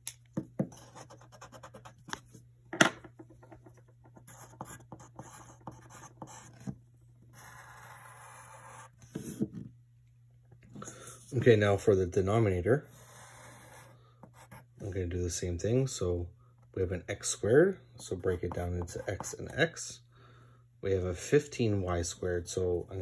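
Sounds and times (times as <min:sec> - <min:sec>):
pencil writing on paper: 0:00.6 - 0:02.2, 0:04.0 - 0:09.4, 0:12.9 - 0:14.7.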